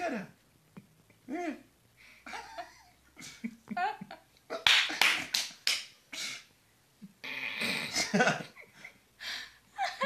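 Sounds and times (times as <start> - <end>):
person laughing hard: 2.3 - 4.6.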